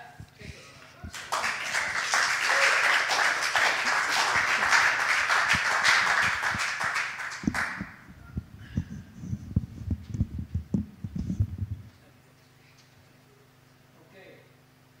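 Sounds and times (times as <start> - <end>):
congregation applauding: 1.0 - 8.0.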